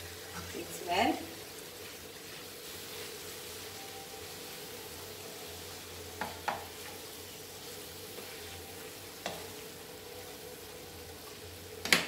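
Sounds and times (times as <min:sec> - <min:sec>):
food sizzling in a pan: 0:00.0 - 0:12.0
spoon stirring in a pan: 0:01.4 - 0:03.7, 0:06.2 - 0:10.4
spoon knocking against pan: 0:06.2 - 0:06.7.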